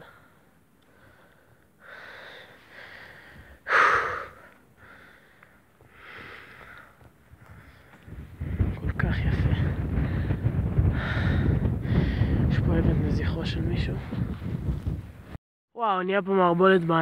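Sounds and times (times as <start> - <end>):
person breathing: 0.0 - 8.7, 10.0 - 12.5.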